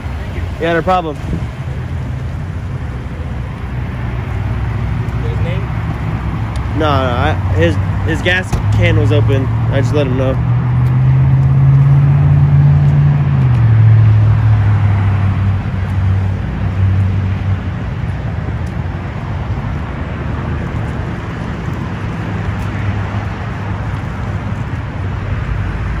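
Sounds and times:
road traffic rumble: 0.0s - 26.0s
vehicle engine hum: 0.0s - 26.0s.

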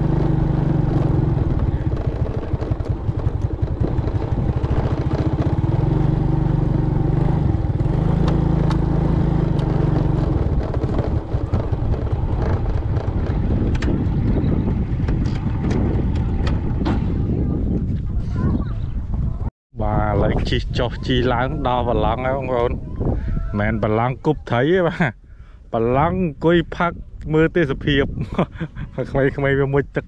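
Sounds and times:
motorbike engine running slowly: 0.0s - 16.8s
sharp clicks and knocks: 9.5s - 14.0s.

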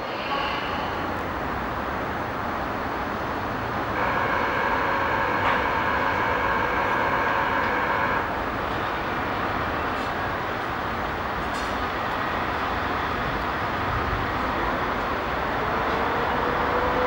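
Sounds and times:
locomotive rumble and hum: 0.1s - 17.0s
high multi-tone whine: 3.8s - 9.0s.

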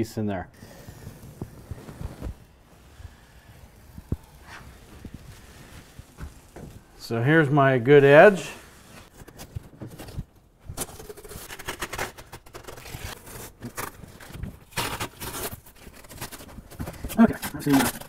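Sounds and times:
tape being peeled off: 0.6s - 7.0s, 10.8s - 16.8s
peeled tape rustling: 0.6s - 7.2s, 7.9s - 18.0s.

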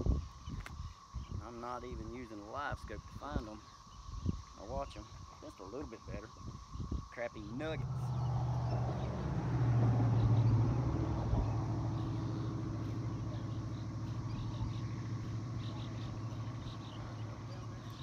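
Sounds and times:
motor hum and rumble: 6.7s - 18.0s.

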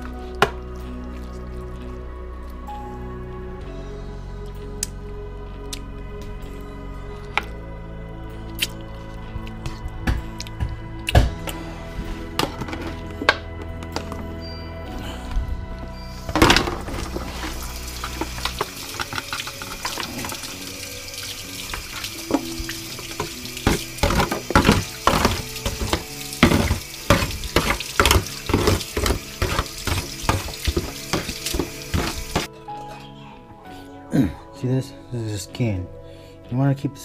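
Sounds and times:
spoon scraping foil pan: 16.3s - 20.0s, 23.2s - 32.5s.

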